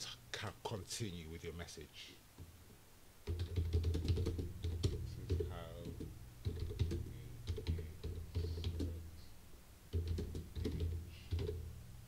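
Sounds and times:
typing on computer keyboard: 3.2s - 9.0s, 9.9s - 11.6s.

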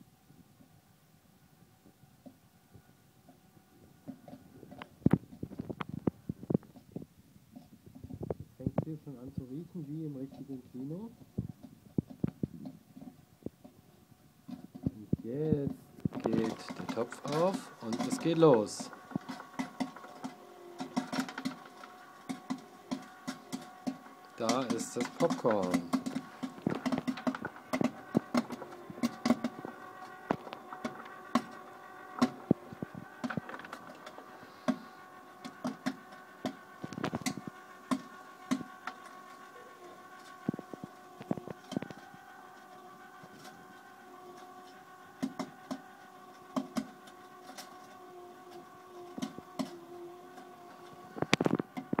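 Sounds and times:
machine humming: 1.4s - 52.0s
popcorn kernels popping: 16.0s - 34.1s.

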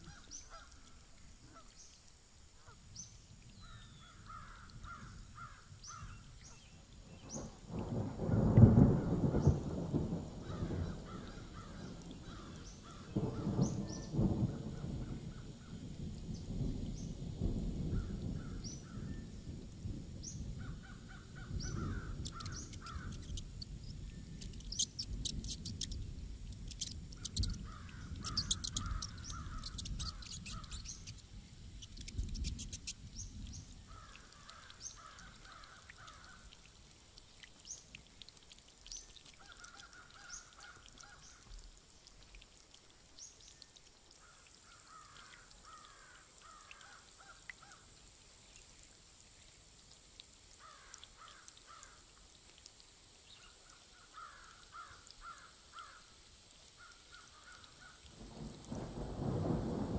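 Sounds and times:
low rumble of thunder: 3.6s - 35.7s, 58.0s - 59.9s
crows cawing: 4.3s - 6.1s, 10.4s - 13.2s, 20.6s - 23.2s, 27.4s - 30.8s, 33.9s - 36.4s, 44.9s - 47.8s, 50.6s - 52.0s, 54.1s - 56.0s
small birds chirping: 21.5s - 36.4s
fast high clicking: 22.2s - 33.0s.

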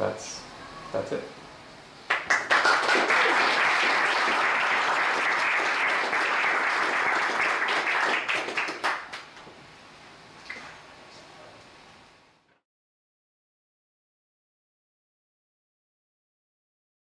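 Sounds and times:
audience applauding: 2.1s - 9.4s.

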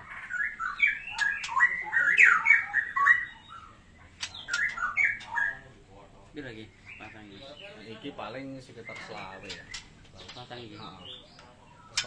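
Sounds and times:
bird chirping sharply: 0.0s - 5.6s.

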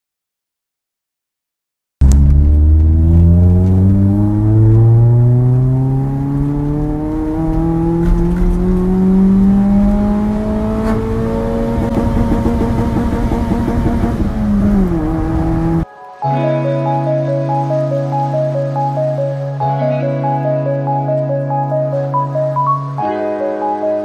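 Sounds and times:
car engine accelerating: 2.0s - 15.9s.

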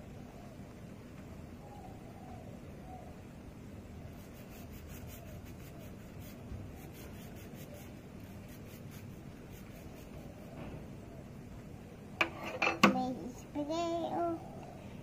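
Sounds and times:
nail file scratching: 4.1s - 10.4s.

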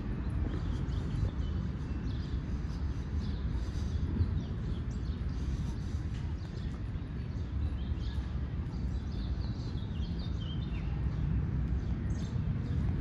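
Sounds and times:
low city rumble: 0.0s - 13.0s
small birds chirping: 0.0s - 13.0s.

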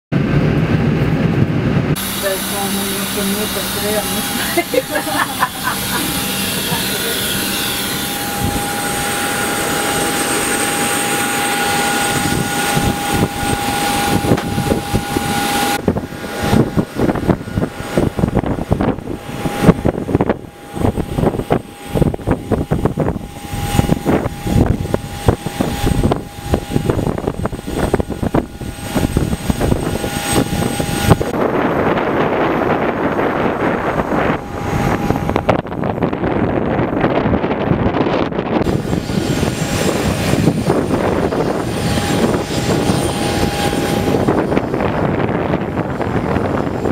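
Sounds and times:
airliner engine whine and rush: 0.1s - 46.9s
rumbling knocks: 12.7s - 23.2s.

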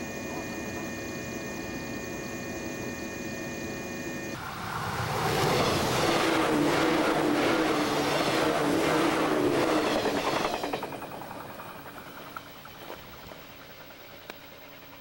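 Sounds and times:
electric train hum: 0.0s - 15.0s
rushing train noise: 4.1s - 15.0s.

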